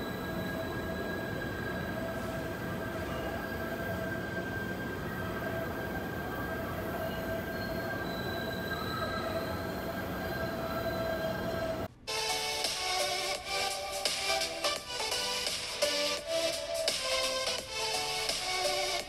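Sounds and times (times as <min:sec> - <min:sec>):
train wheels squealing: 0:00.0 - 0:11.9
music: 0:09.3 - 0:19.0.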